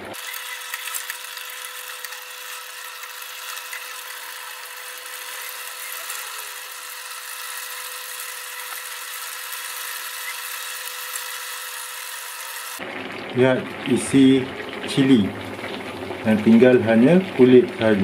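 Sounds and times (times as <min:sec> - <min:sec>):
high whir with thin whine: 0:00.0 - 0:12.8.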